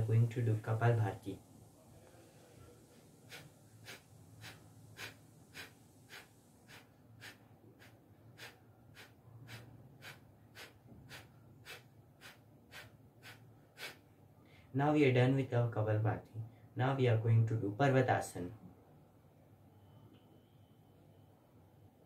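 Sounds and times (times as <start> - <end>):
forceful nasal exhalations: 2.2 - 14.7.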